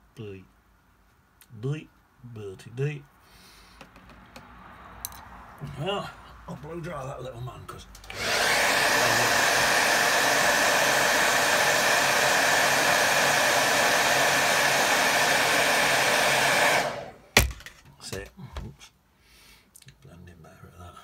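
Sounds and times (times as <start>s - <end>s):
hair dryer blowing: 8.0s - 17.6s
sharp knock: 17.4s - 17.8s.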